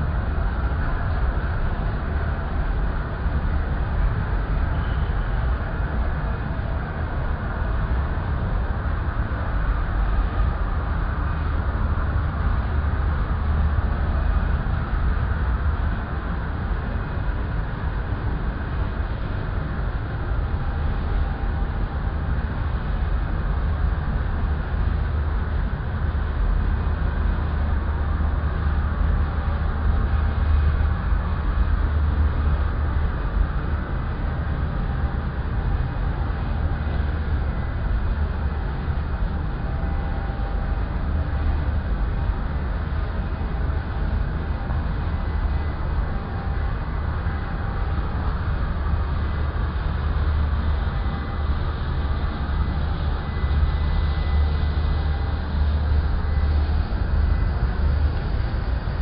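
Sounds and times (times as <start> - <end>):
boring mill humming: 26.2 - 59.0.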